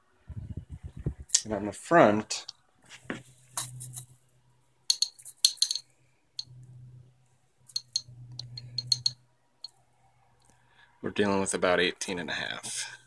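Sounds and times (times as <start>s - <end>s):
low hum: 6.4s - 9.2s.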